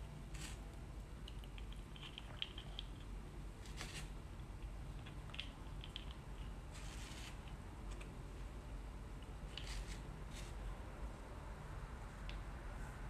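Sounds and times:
soft rustle: 6.0s - 8.1s, 9.5s - 10.8s.

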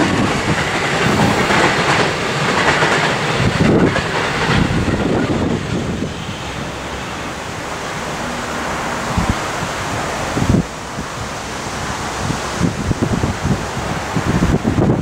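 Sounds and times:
freight train rumbling: 0.0s - 15.0s
wind buffeting microphone: 0.0s - 15.0s.

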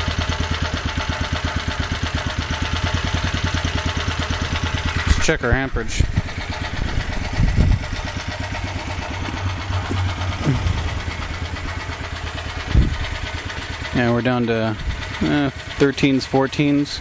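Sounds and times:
generator engine running: 0.0s - 17.0s
dull engine knocks: 6.1s - 13.9s.

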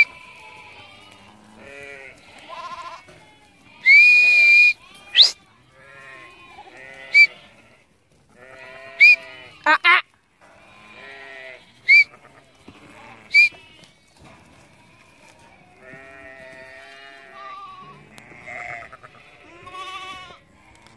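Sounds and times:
sheep and lambs bleating: 0.0s - 20.9s
short sharp high whistles: 3.8s - 5.4s, 9.0s - 9.3s, 11.9s - 12.1s, 13.3s - 13.6s.

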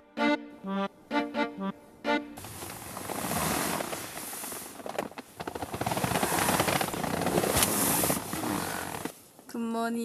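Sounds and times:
padded fabric rustling: 2.4s - 9.4s.

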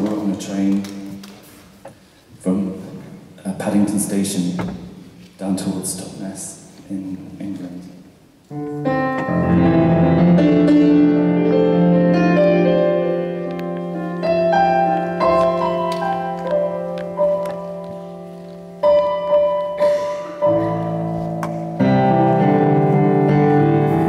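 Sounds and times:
keyboard playing piano chords: 8.5s - 24.0s.

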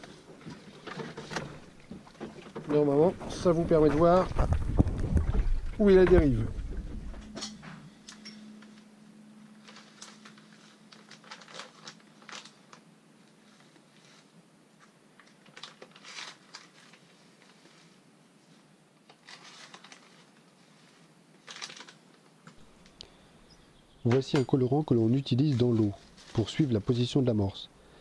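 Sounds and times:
plastic bags crinkling: 9.5s - 17.8s, 19.0s - 23.0s, 25.1s - 27.1s.

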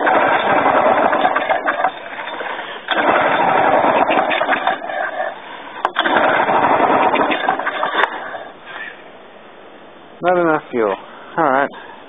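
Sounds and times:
lawn mower engine sputtering: 0.0s - 8.2s.

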